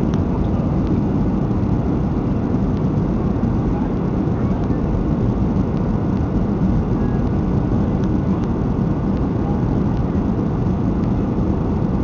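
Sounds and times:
jet engines rumbling in cabin: 0.0s - 12.0s.

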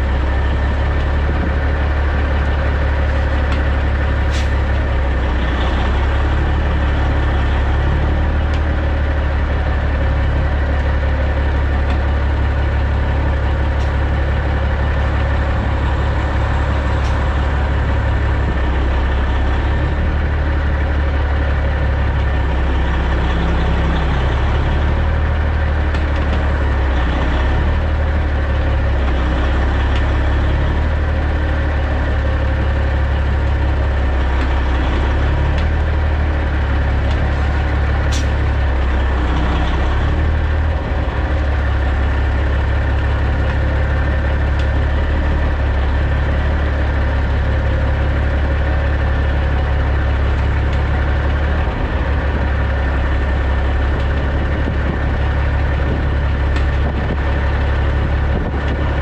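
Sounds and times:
truck diesel engine idling: 0.0s - 59.0s.

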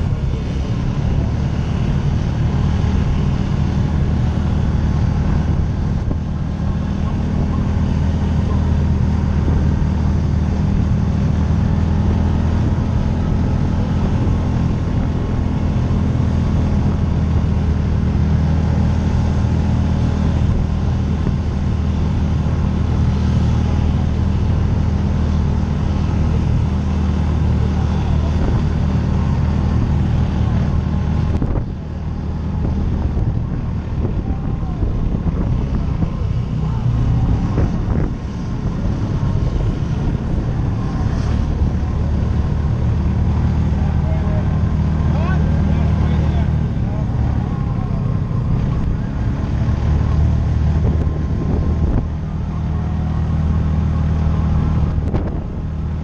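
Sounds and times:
engine droning under load: 0.0s - 56.0s.

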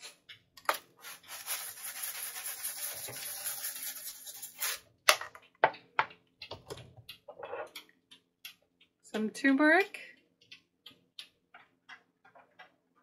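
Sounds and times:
seasoning rattling in shaker: 1.0s - 4.8s.

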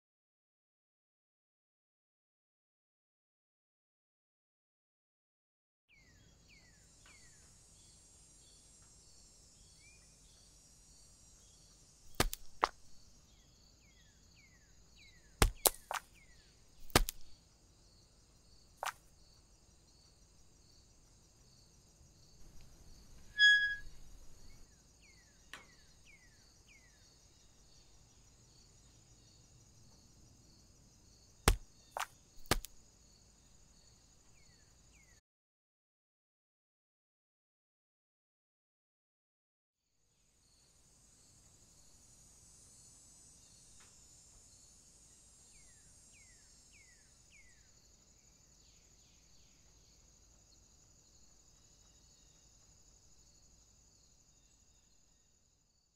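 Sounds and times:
insect chorus: 5.9s - 35.2s, 40.0s - 55.9s
acorns hitting the ground: 12.1s - 13.0s, 15.4s - 16.2s, 16.8s - 17.3s, 31.5s - 32.8s
brief squeak: 23.3s - 24.1s.

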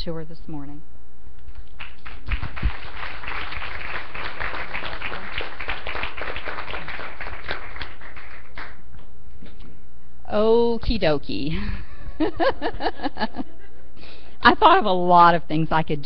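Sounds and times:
congregation applauding: 1.5s - 9.1s.

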